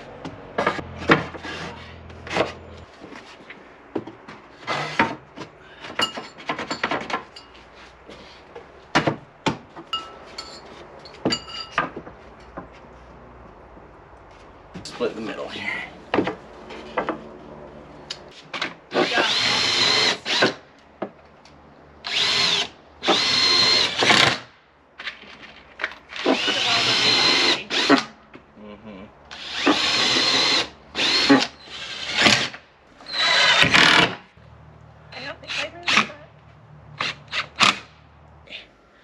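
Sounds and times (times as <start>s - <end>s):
cordless drill whirring: 18.9s - 20.5s, 22.0s - 24.2s, 26.2s - 28.0s, 29.3s - 34.1s.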